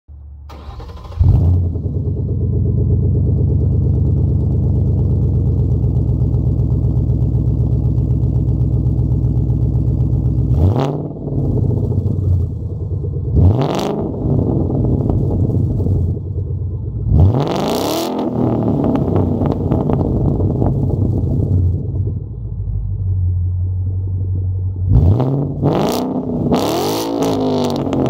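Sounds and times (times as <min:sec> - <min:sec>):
car engine idling: 0:00.1 - 0:26.6
car engine starting: 0:00.1 - 0:28.0
engine revving: 0:00.5 - 0:05.6, 0:09.6 - 0:16.4, 0:17.0 - 0:22.1, 0:24.8 - 0:28.0.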